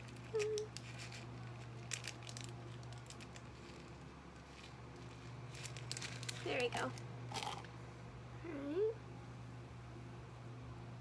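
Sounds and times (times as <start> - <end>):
plastic packet crinkling: 0.0 - 7.7
steady low hum: 0.0 - 11.0.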